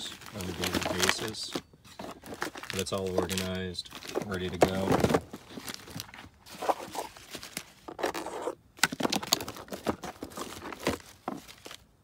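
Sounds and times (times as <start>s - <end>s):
paper and packaging rustling: 0.0s - 12.0s
plastic cases clicking and knocking: 0.6s - 6.1s, 8.8s - 11.7s.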